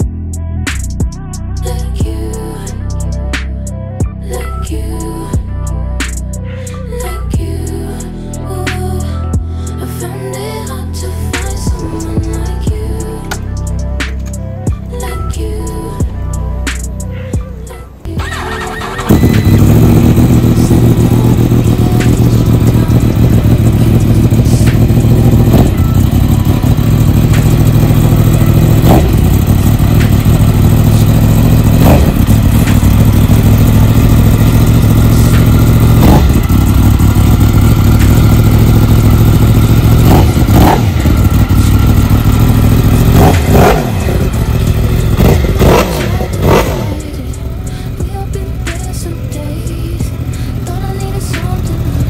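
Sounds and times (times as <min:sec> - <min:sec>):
motorcycle engine revving at idle: 0:18.2 - 0:52.0.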